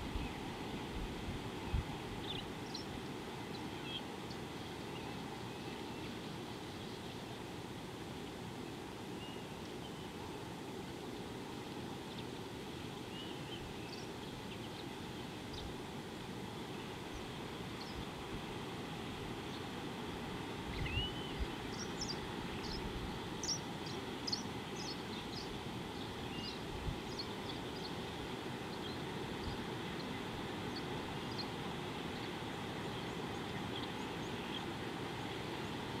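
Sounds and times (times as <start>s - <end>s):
small birds chirping: 1.7s - 7.2s, 12.0s - 15.8s, 20.7s - 34.8s.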